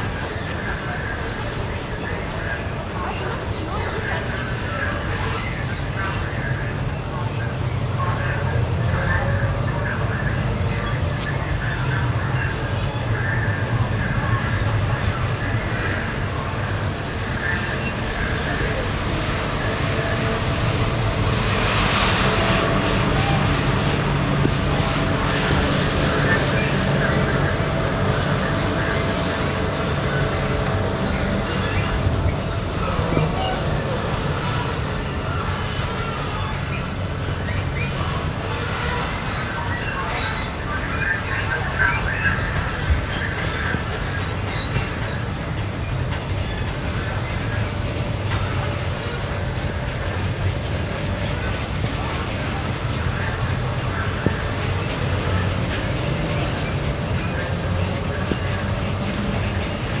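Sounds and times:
city rumble: 0.0s - 60.0s
high-pitched squeals: 12.5s - 60.0s.

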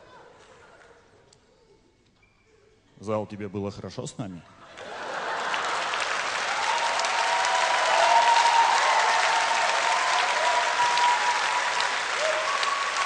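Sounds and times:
studio audience applauding: 4.8s - 13.0s.

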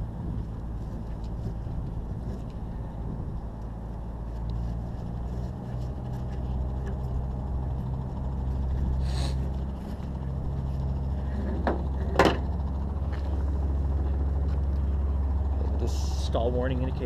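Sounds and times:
low engine drone: 0.0s - 17.0s
rope rustling: 3.6s - 7.3s.

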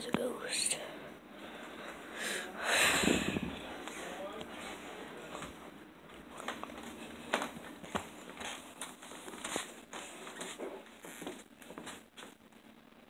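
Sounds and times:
phone rustling on fabric blanket: 6.3s - 12.4s.

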